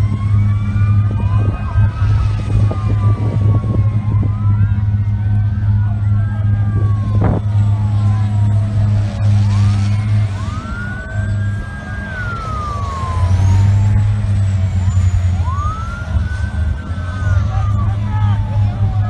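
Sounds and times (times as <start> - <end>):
emergency sirens wailing: 0.0 - 19.0
low engine drone: 0.0 - 19.0.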